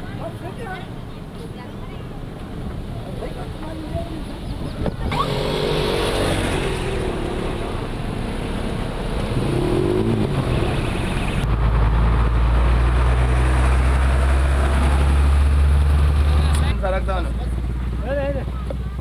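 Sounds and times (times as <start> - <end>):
vehicle engine running: 5.1 - 13.8
deep engine hum: 5.1 - 16.8.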